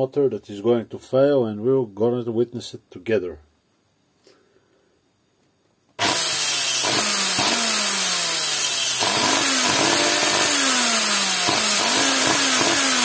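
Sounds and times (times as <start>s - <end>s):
vacuum motor high whine: 6.0s - 13.0s.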